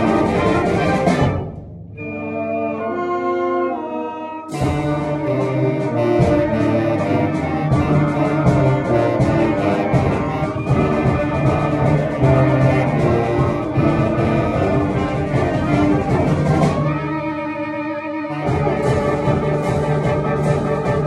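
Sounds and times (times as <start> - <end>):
bass clarinet: 0.0 - 21.0
clarinet: 0.0 - 21.0
concert band music: 0.0 - 21.0.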